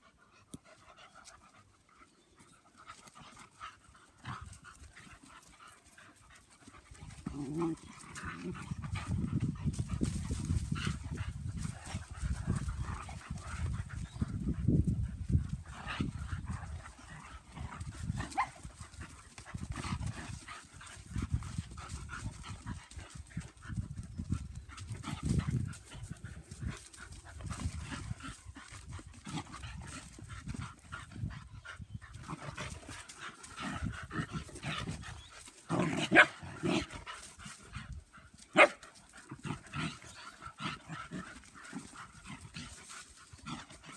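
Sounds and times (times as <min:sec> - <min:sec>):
dogs growling and scuffling: 0:00.0 - 0:43.9
dog barking: 0:38.6 - 0:38.8.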